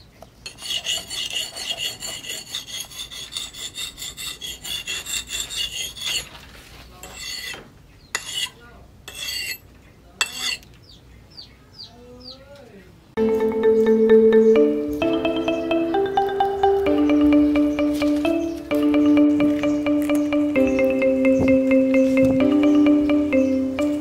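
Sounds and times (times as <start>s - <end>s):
axe blade rasping on whetstone: 0.5s - 6.3s, 7.0s - 9.6s, 10.2s - 10.6s.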